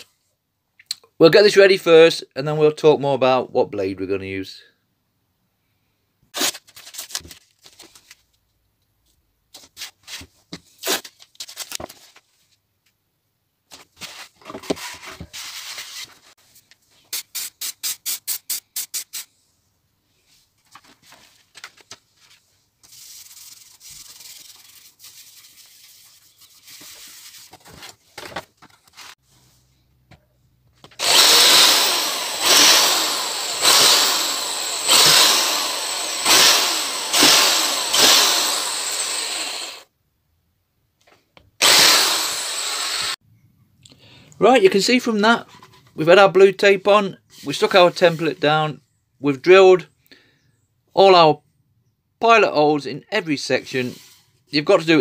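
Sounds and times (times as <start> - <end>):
rubbing and handling sounds: 6.3 - 13.0, 13.6 - 31.3, 45.0 - 46.2, 53.5 - 54.8
power drill boring into wood: 31.0 - 39.8, 41.6 - 43.2.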